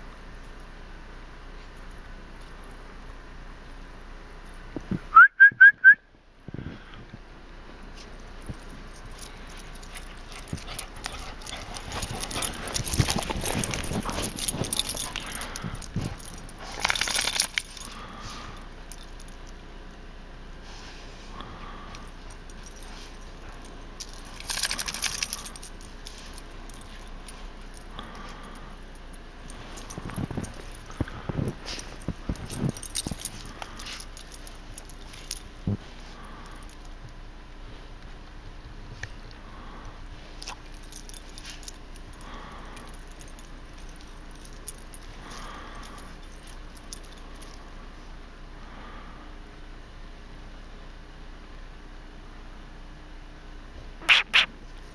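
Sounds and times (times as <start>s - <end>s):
collar tags jingling: 7.8s - 20.1s, 21.8s - 37.2s, 40.3s - 48.1s.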